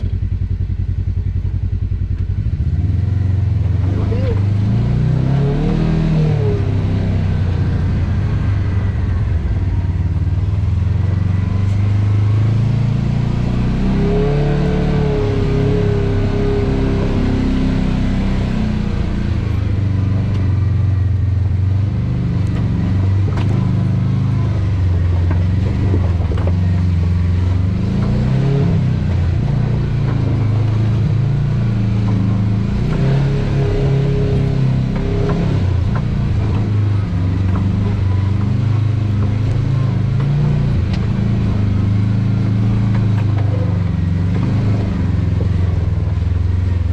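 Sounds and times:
off-road vehicle engine running: 0.0 - 46.9.

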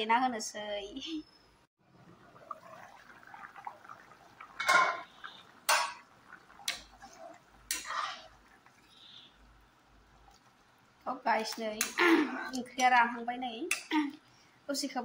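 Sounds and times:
metal ladle clanking on pan: 4.6 - 5.1, 5.7 - 6.9, 7.7 - 8.2.

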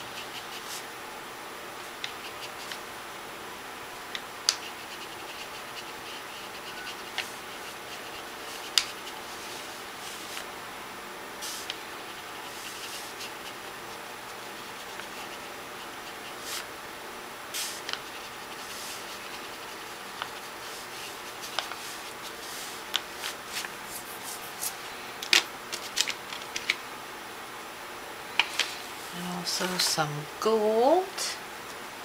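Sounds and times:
paintbrush on paper: 0.1 - 0.8, 4.5 - 10.4, 11.4 - 16.7, 17.6 - 24.7
faint hiss: 11.4 - 16.7, 17.4 - 25.2.

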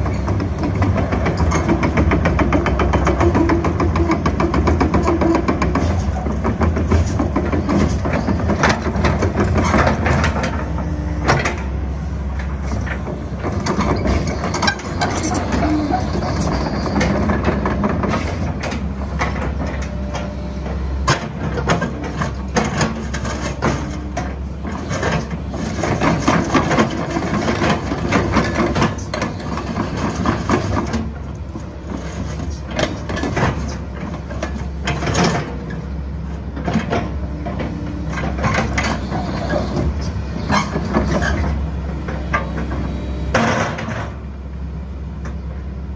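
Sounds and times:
excavator diesel engine running: 0.0 - 45.9
metallic clanks from tracks: 12.4 - 31.2, 36.6 - 44.2.

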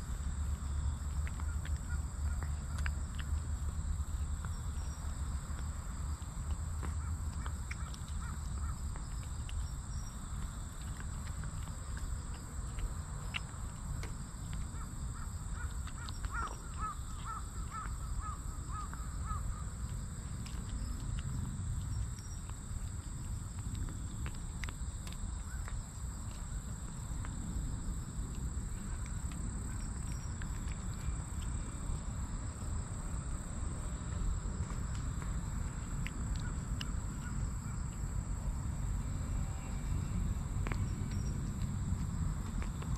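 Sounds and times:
cat chewing and licking: 0.0 - 17.3
low outdoor rumble: 0.0 - 42.9.

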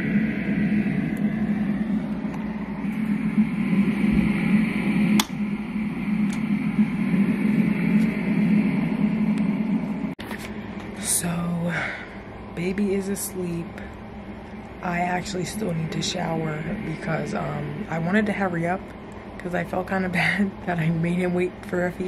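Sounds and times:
steady low hum: 0.0 - 22.0
sharp click: 5.2 - 5.4.

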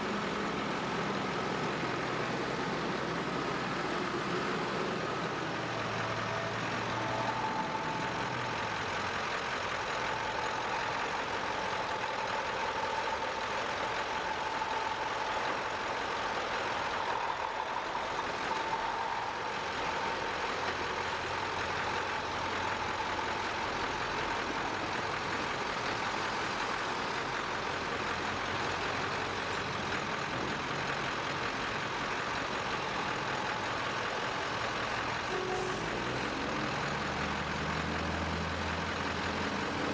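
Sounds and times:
heavy trucks driving past: 0.0 - 39.9
faint steady high tone: 4.8 - 21.1, 35.2 - 36.3.

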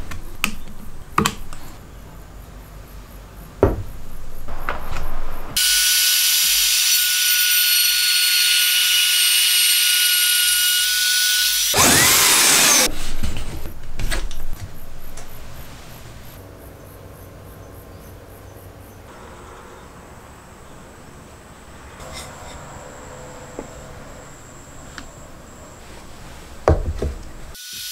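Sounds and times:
power tool high whine: 5.6 - 12.9, 27.6 - 27.9.

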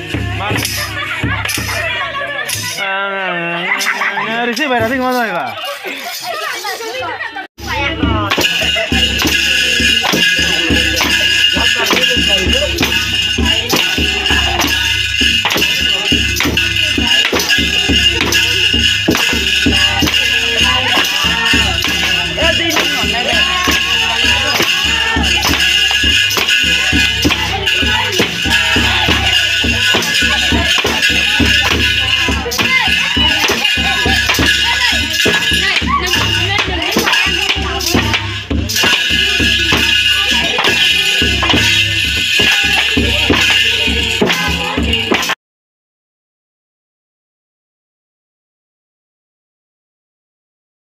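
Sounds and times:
music with steady beat: 0.0 - 2.9, 7.6 - 45.4
drums: 0.0 - 3.0, 3.7 - 45.4
rattling hand percussion: 0.0 - 45.4.

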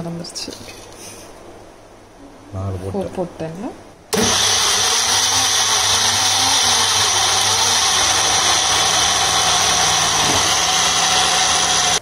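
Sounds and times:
electric mixer grinder running: 4.2 - 12.0.

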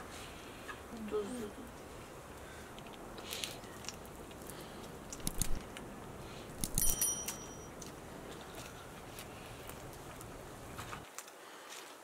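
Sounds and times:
short metallic ring: 6.6 - 7.8.

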